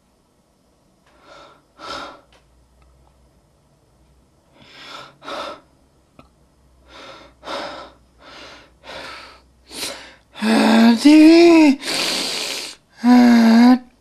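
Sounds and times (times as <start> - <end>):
man breathing close to microphone: 1.1 - 2.3, 6.8 - 10.8.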